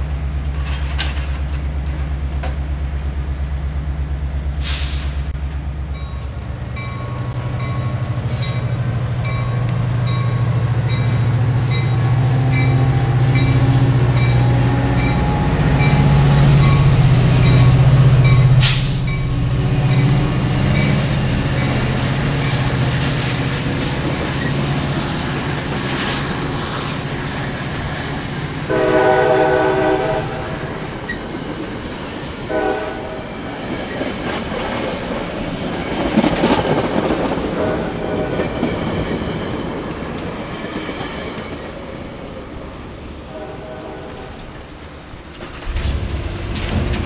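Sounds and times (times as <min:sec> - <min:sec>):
diesel locomotive engine droning: 0:00.0 - 0:47.0
train wheels on rails: 0:00.0 - 0:47.0
train horn: 0:12.8 - 0:17.0, 0:28.6 - 0:30.9, 0:32.5 - 0:33.4, 0:37.5 - 0:38.6, 0:43.2 - 0:44.6.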